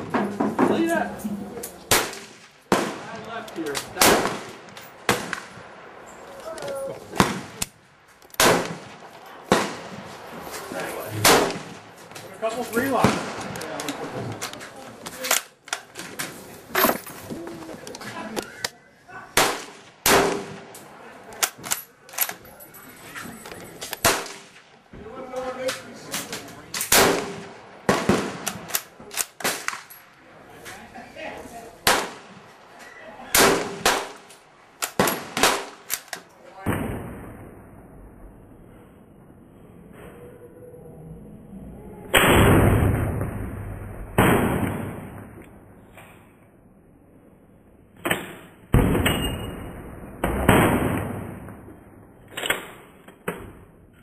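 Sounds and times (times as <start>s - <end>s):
rifle shot: 1.9s - 5.8s, 7.2s - 7.8s, 8.4s - 10.0s, 11.1s - 11.9s, 12.9s - 14.0s, 19.4s - 20.8s, 24.0s - 24.7s, 26.1s - 29.9s, 31.8s - 32.4s, 33.3s - 37.5s, 42.1s - 45.4s, 48.0s - 51.7s.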